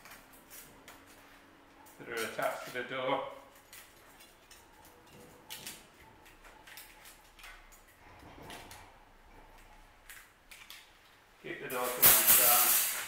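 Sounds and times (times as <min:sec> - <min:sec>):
wire cage door rattling: 0:11.7 - 0:13.0.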